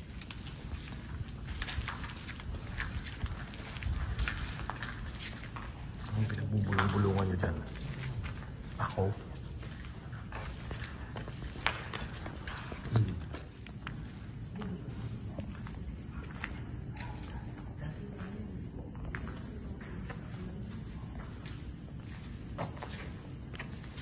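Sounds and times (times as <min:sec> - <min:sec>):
crickets trilling: 0:00.0 - 0:24.0
faint footsteps: 0:00.0 - 0:24.0
higher cricket trill: 0:05.2 - 0:11.4.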